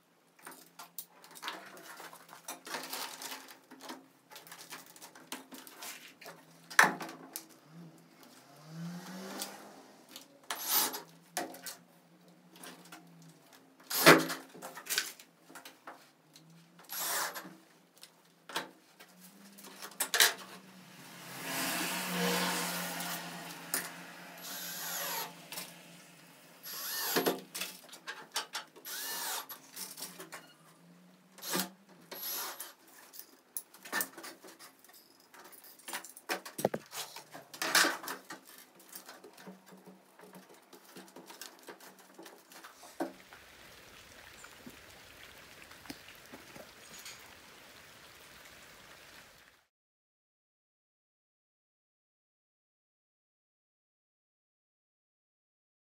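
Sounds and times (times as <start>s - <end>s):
small power tool running: 20.7s - 27.4s, 28.9s - 29.5s.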